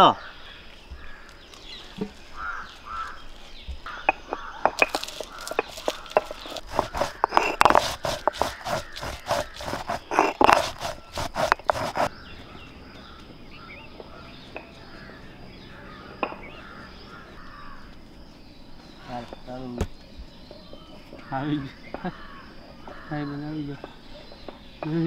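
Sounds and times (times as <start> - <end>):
stone grinding and knocking: 4.3 - 12.1.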